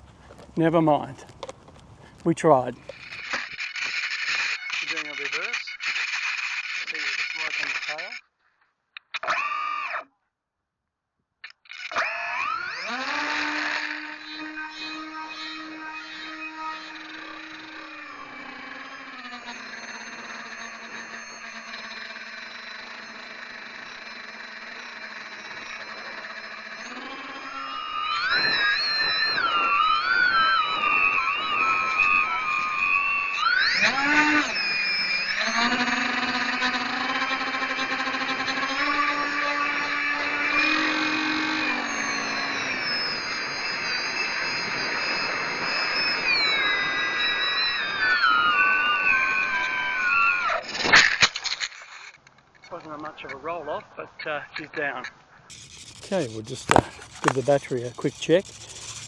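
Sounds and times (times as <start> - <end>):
model plane motors whining: 0.0 - 8.2, 11.4 - 52.2, 55.5 - 59.0
lower tone: 14.0 - 37.4, 38.9 - 50.6.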